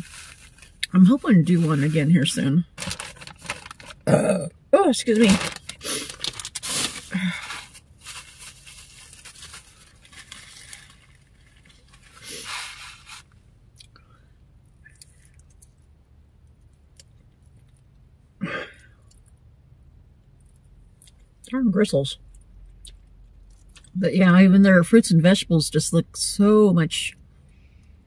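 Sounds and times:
crackly scraping noises: 0.0s - 4.0s, 5.1s - 13.4s.

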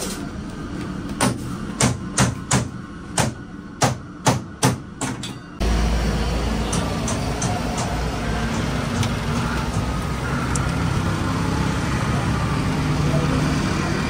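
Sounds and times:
traffic rumble: 5.6s - 14.0s.

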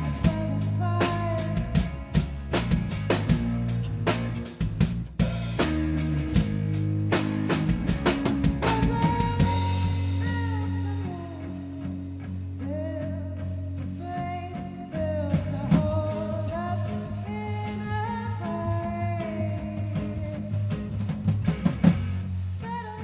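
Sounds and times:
woman singing: 0.0s - 2.2s, 8.6s - 21.0s, 22.6s - 23.0s
rock band playing live: 0.0s - 22.9s.

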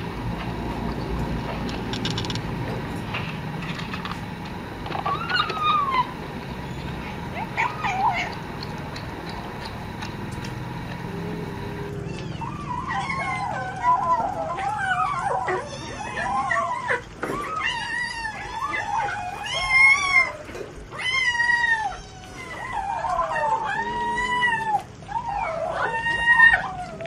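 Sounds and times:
cat yowling: 4.9s - 8.7s, 10.7s - 27.0s.

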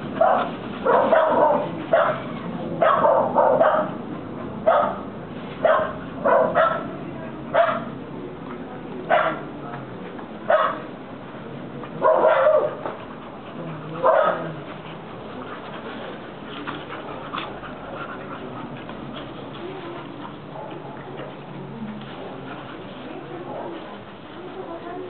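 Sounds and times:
dog barking: 0.2s - 4.0s, 4.7s - 5.0s, 5.6s - 6.9s, 7.6s - 7.9s, 9.1s - 9.4s, 10.5s - 10.8s, 12.0s - 12.8s, 14.0s - 14.5s.

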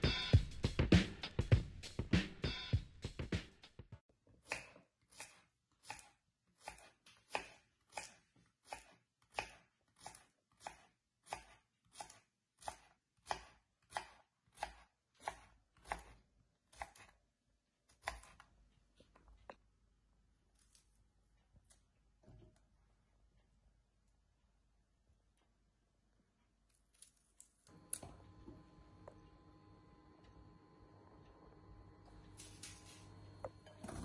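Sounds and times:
knife slicing on wooden board: 4.5s - 17.1s.

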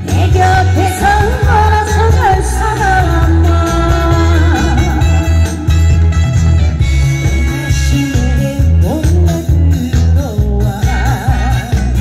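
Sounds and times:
woman singing into microphone: 0.0s - 5.7s
music with heavy pulsing bass: 0.0s - 12.0s.

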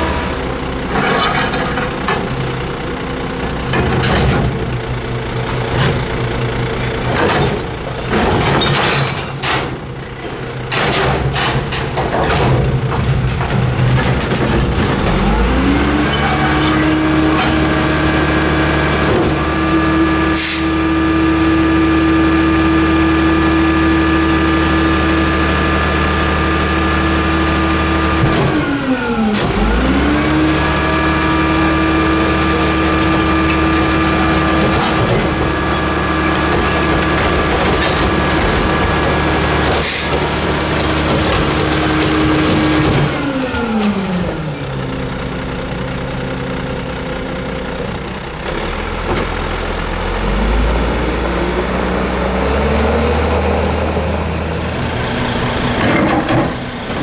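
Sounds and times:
diesel engine running: 0.0s - 57.0s
garbage truck knocks and bangs: 3.7s - 4.7s, 7.0s - 15.3s, 32.1s - 43.8s.

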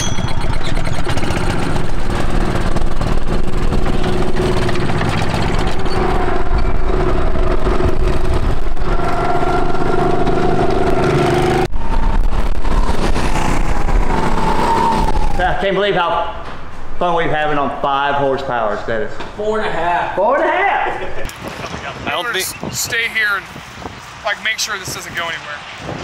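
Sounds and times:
go-kart engine running: 0.0s - 11.7s.

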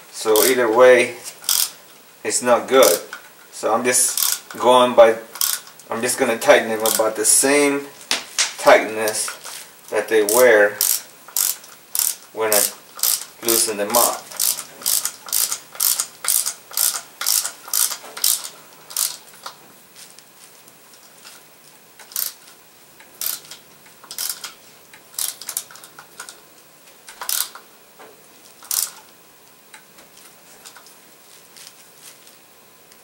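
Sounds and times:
ratchet wrench clicking: 0.4s - 0.6s, 1.4s - 1.8s, 4.0s - 4.6s, 5.3s - 5.8s, 6.8s - 7.2s, 10.2s - 19.6s, 22.0s - 22.5s, 23.1s - 26.4s, 27.1s - 27.7s, 28.6s - 29.1s.

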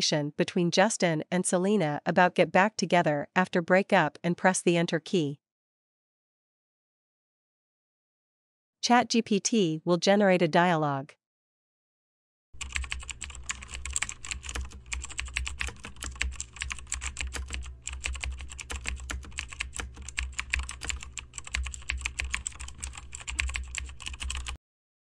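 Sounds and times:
steady low hum: 12.6s - 24.5s
rapid keyboard typing: 12.6s - 24.6s.

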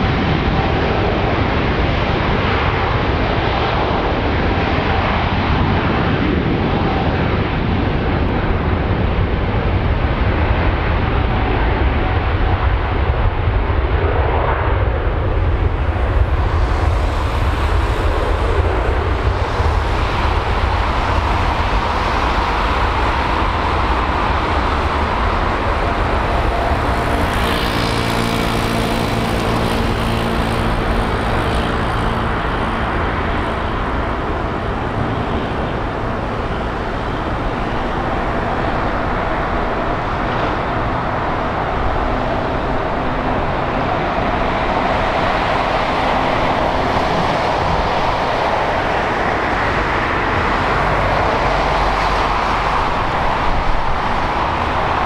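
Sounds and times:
jet engine roar: 0.0s - 55.0s
steady humming tones: 14.8s - 55.0s.

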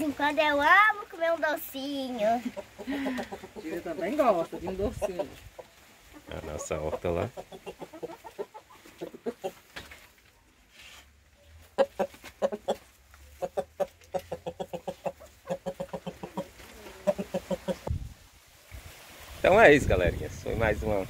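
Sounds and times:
chickens clucking: 0.0s - 18.8s.

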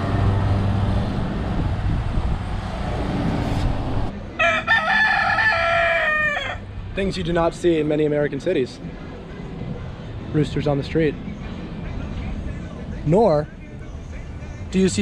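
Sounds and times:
steady background noise: 0.0s - 15.0s
rooster crowing: 4.3s - 6.7s.

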